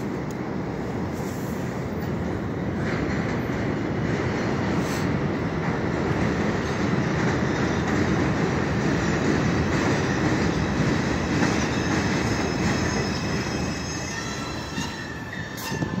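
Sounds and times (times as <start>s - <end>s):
train wheels rumbling: 0.0s - 16.0s
high metallic brake squeal: 11.5s - 16.0s.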